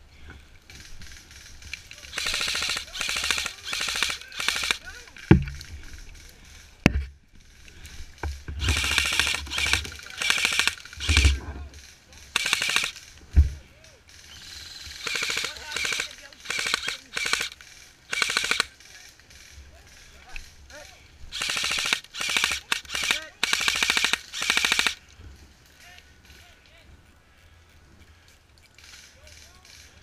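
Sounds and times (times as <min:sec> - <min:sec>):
airsoft gunfire bursts: 0:01.0 - 0:05.0, 0:08.6 - 0:13.1, 0:14.4 - 0:19.6, 0:21.3 - 0:25.0
heavy thumps: 0:05.2 - 0:05.8.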